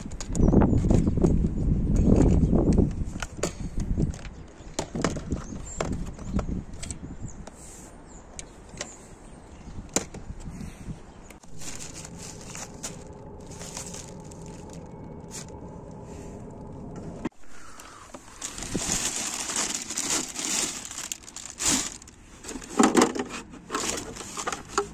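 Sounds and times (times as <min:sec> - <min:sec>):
rustles: 0:10.2 - 0:24.9
clicks and knocks of junk handled: 0:21.0 - 0:24.9.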